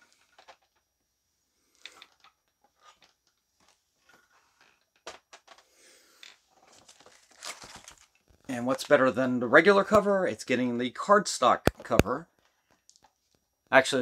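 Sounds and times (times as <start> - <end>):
rustling: 6.2 - 9.0.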